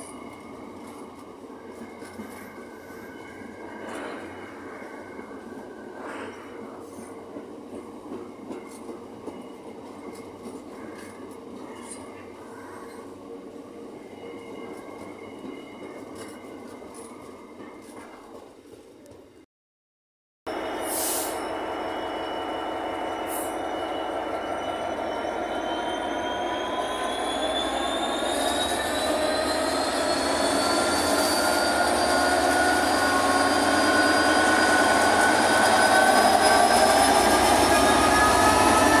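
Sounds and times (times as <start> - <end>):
locomotive engine pulling away: 21.7 - 39.0.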